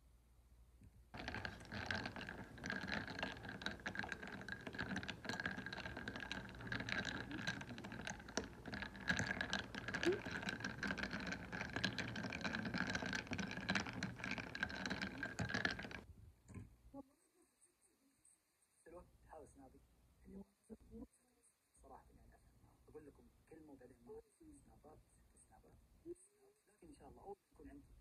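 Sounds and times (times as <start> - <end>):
ice cubes clinking in mug: 1.2 - 16.0.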